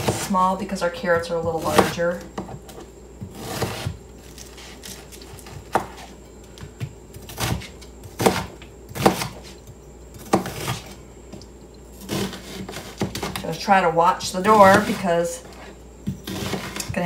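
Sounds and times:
knife chopping on cutting mat: 0:01.1 - 0:02.6, 0:03.2 - 0:09.6, 0:10.2 - 0:10.9, 0:16.0 - 0:17.0.

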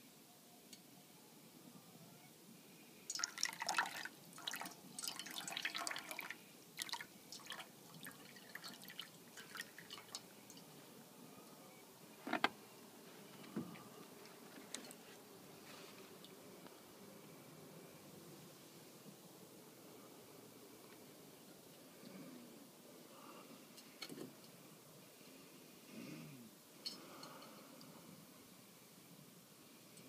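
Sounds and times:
water splashing into metal bowl: 0:03.1 - 0:10.6
water dripping: 0:03.1 - 0:10.7.

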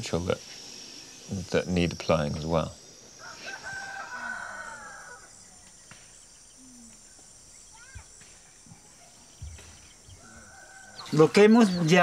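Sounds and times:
bird chirp: 0:00.0 - 0:12.0
high insect hum: 0:00.0 - 0:12.0
rooster crowing: 0:03.2 - 0:05.5, 0:10.1 - 0:11.4.

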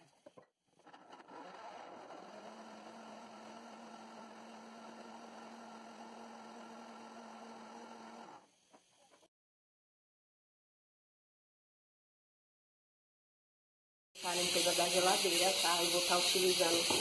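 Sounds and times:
blender whirring: 0:01.3 - 0:08.6, 0:14.2 - 0:17.0.

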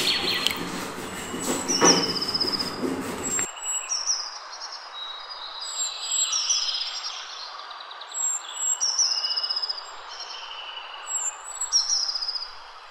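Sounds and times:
rapid high bird trill: 0:00.0 - 0:03.5
birds chirping and whistling: 0:00.0 - 0:03.8
steady outdoor hiss: 0:00.0 - 0:12.9.

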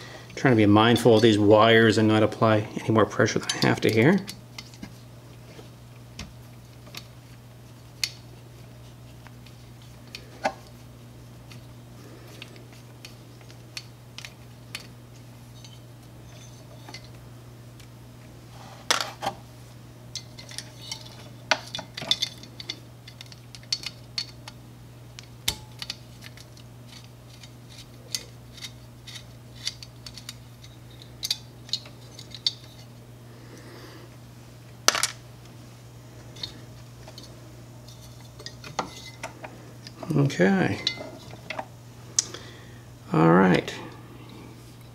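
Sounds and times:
steady low hum: 0:00.0 - 0:44.9
small parts clicking and clinking: 0:20.1 - 0:24.6, 0:25.2 - 0:32.9.

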